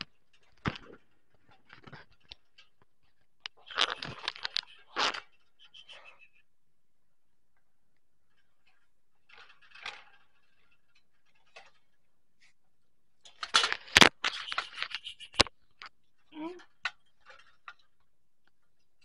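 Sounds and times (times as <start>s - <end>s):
wire cage clicks and rattles: 9.3s - 11.8s.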